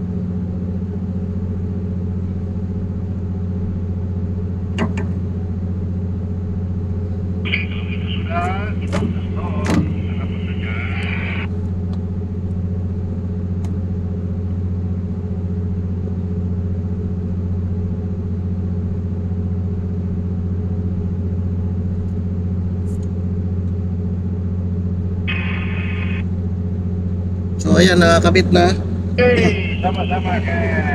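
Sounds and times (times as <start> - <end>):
ship machinery droning: 7.1 - 11.6, 25.2 - 26.5, 27.3 - 30.9.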